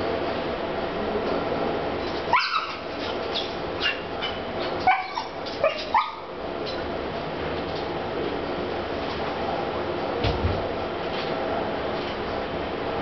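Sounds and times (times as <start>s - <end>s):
steady background hum: 0.0s - 13.0s
animal yelping calls: 2.3s - 6.3s.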